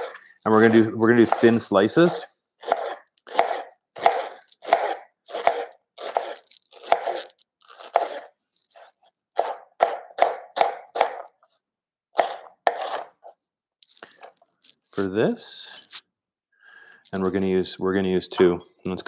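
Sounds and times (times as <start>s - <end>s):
knife slicing onion on board: 0.0s - 1.6s, 2.6s - 8.3s, 9.4s - 11.3s, 12.2s - 13.1s.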